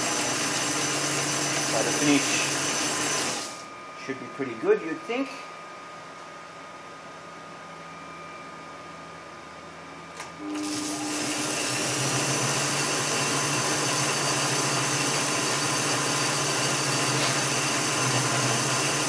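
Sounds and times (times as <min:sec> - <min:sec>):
lathe motor humming with gear whine: 0:00.0 - 0:04.2, 0:10.4 - 0:19.0.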